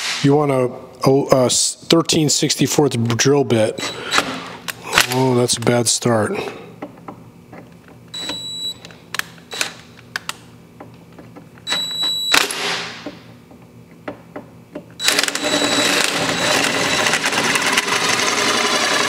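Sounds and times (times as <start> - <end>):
cordless drill cutting metal: 3.8 - 4.5, 15.0 - 19.0.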